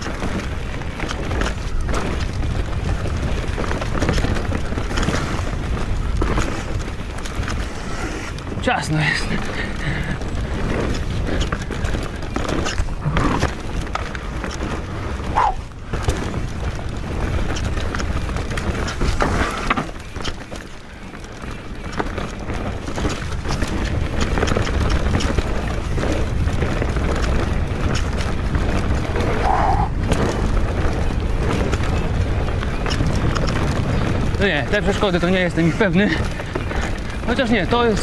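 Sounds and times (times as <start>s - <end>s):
bike clattering over roots: 0.0s - 38.0s
bike tyres rumbling on dirt: 0.0s - 38.0s
rushing air: 29.2s - 30.1s.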